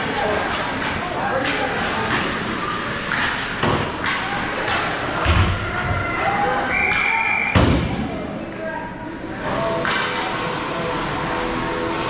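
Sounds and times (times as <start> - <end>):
scattered voices: 0.0 - 12.0.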